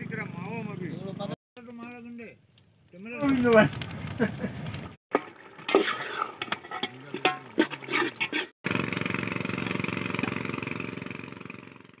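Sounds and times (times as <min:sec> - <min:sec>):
boat engine running: 0:08.7 - 0:12.0.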